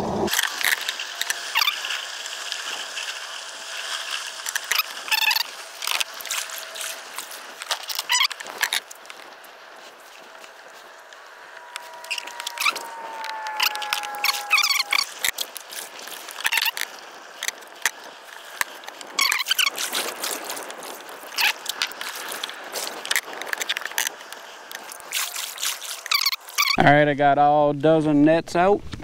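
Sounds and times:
thin falling tone: 0:10.5 - 0:16.8.

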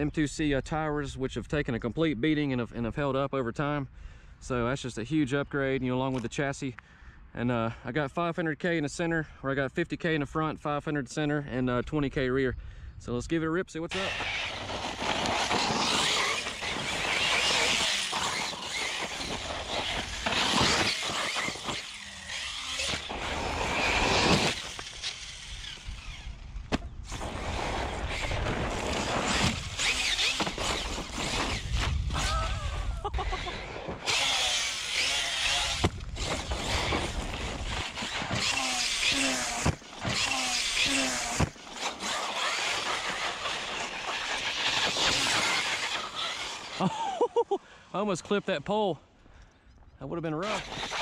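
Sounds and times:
tyres crunching over gravel: 0:13.9 - 0:26.2
electric motor whining: 0:13.9 - 0:46.9, 0:50.4 - 0:51.0.

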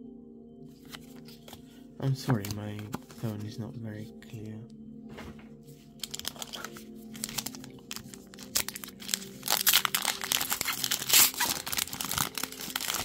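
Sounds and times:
foil wrapper crinkling and tearing: 0:06.0 - 0:13.0.

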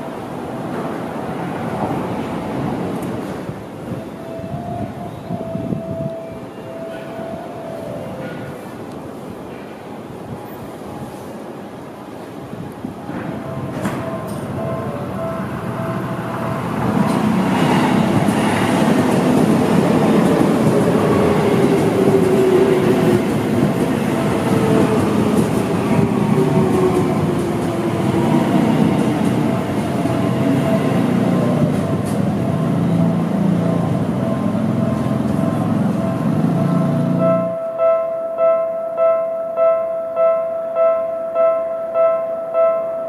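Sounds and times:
train wheels rumbling on rail: 0:00.0 - 0:37.5
crossing warning bell: 0:03.8 - 0:09.0, 0:13.0 - 0:32.8, 0:33.6 - 0:43.0.

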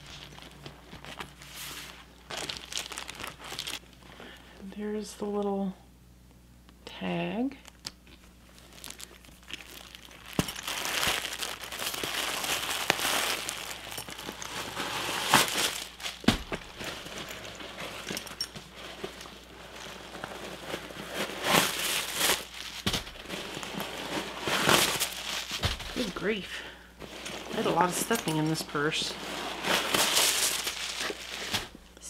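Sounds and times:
packing stuffing crinkling: 0:00.0 - 0:04.0, 0:07.6 - 0:32.0
sharp crackles and knocks: 0:07.7 - 0:26.3.

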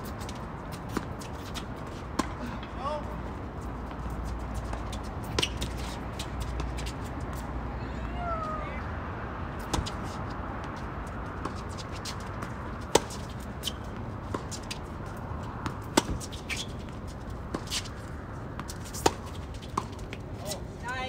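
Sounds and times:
racket striking tennis ball: 0:11.4 - 0:14.8, 0:15.6 - 0:16.8, 0:18.6 - 0:20.0.

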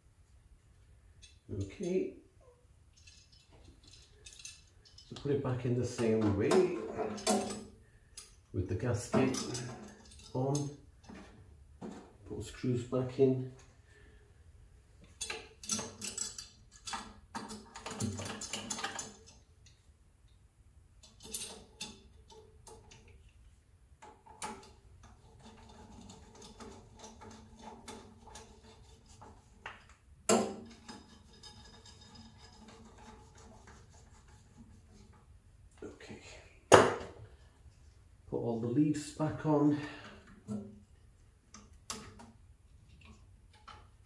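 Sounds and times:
screwdriver and screws on metal: 0:01.2 - 0:02.0, 0:02.9 - 0:12.1, 0:15.0 - 0:19.9, 0:21.0 - 0:23.4, 0:24.0 - 0:35.4, 0:41.4 - 0:44.0.

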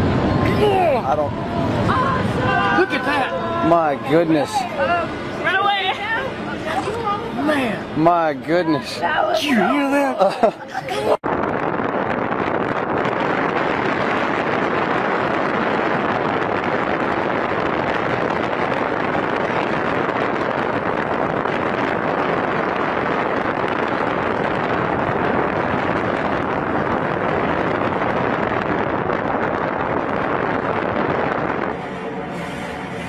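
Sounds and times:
wind on microphone: 0:10.5 - 0:33.0.

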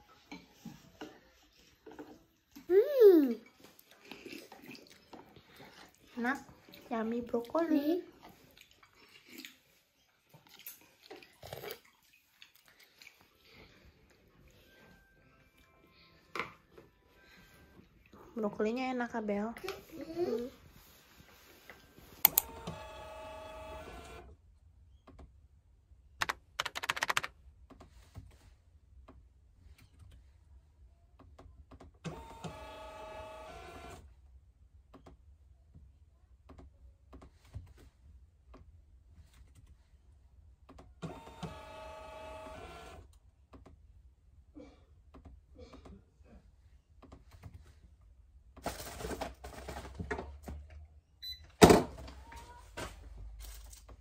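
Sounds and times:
laptop keyboard typing: 0:22.3 - 0:22.9, 0:26.2 - 0:27.3
label printer whirring: 0:22.3 - 0:24.2, 0:32.1 - 0:33.9, 0:41.1 - 0:43.0
sharp clicks: 0:26.2 - 0:27.3.

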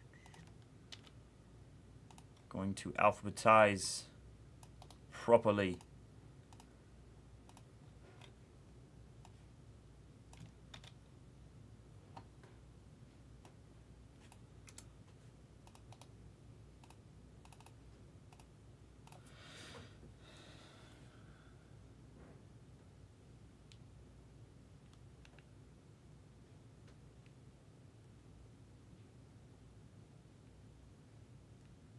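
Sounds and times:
keyboard and mouse clicks: 0:00.1 - 0:01.2, 0:02.1 - 0:02.5, 0:04.6 - 0:05.0, 0:06.5 - 0:06.7, 0:07.4 - 0:08.4, 0:10.3 - 0:11.0, 0:14.2 - 0:14.9, 0:15.6 - 0:16.1, 0:16.8 - 0:19.3, 0:24.8 - 0:25.5.

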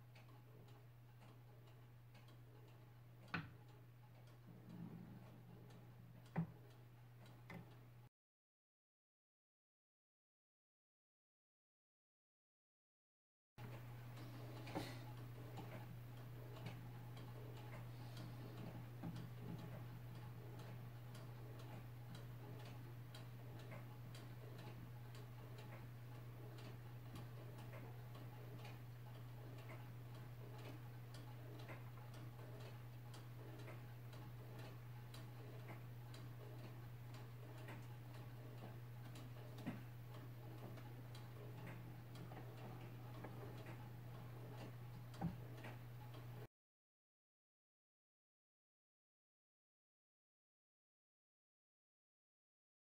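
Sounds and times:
steady low hum: 0:00.0 - 0:08.1, 0:13.6 - 0:46.5
wooden gears ticking: 0:13.6 - 0:46.5.

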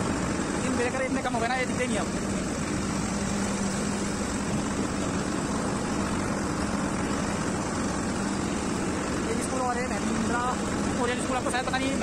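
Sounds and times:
tractor diesel engine humming: 0:00.0 - 0:12.0.

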